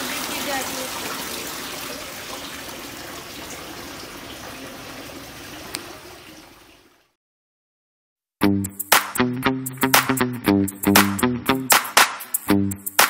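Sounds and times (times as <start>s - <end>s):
water pouring into trough: 0.0s - 7.1s.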